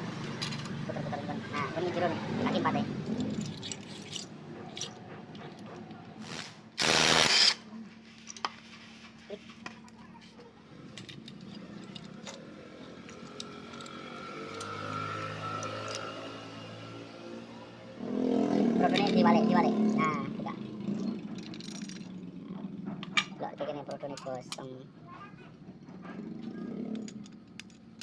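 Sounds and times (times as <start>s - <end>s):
metal clicks and clinks: 3.0s - 6.0s, 11.0s - 16.2s, 20.9s - 22.3s, 26.8s - 28.0s
loud noisy burst: 6.2s - 7.6s.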